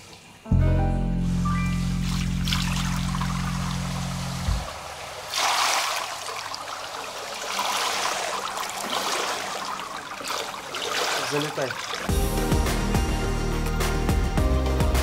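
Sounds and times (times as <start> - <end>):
pool water splashing: 1.2 - 12.1.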